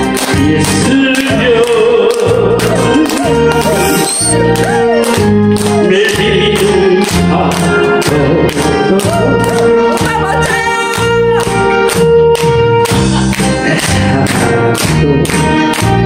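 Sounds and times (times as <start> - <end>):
karaoke backing track: 0.0 - 16.0
man singing into a microphone: 0.3 - 4.3, 5.7 - 9.5, 13.5 - 15.6.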